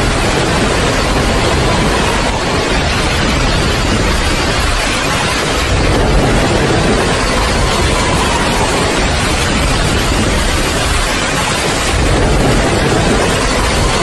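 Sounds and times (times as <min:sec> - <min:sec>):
heavy rain: 0:00.0 - 0:14.0
deep low rumble: 0:05.4 - 0:11.2, 0:11.9 - 0:14.0.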